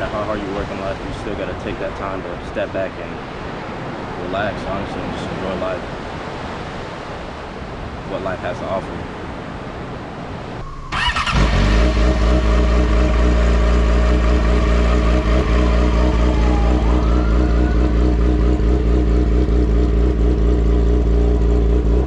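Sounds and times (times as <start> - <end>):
motorcycle engine starting and idling: 10.9 - 22.0.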